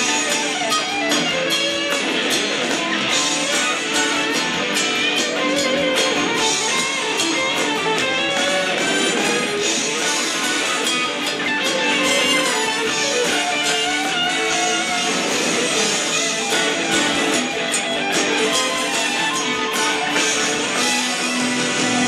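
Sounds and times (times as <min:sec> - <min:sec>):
guitar-driven band instrumental: 0:00.0 - 0:22.0.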